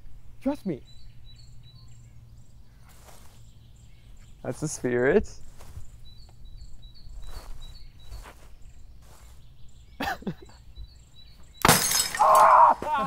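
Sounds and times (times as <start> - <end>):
bird chirping: 0.0 - 12.7
glass bottle smashing: 11.6 - 12.6.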